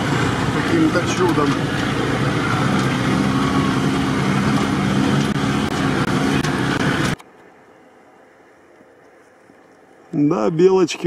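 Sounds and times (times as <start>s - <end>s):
off-road vehicle engine under load: 0.0s - 7.3s
road and drivetrain rumble: 0.0s - 10.0s.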